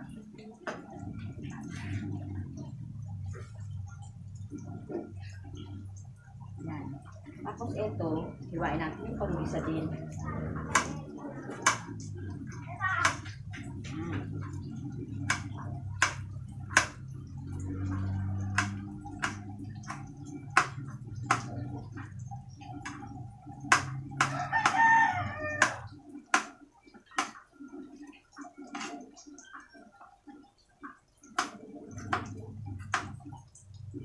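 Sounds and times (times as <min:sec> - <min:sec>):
low steady hum: 0:00.0 - 0:34.0
rooster crowing: 0:24.3 - 0:25.9.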